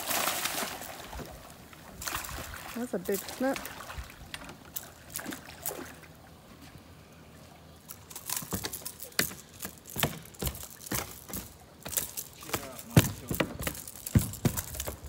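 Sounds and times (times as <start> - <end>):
gear knocking on boat deck: 8.4 - 15.0.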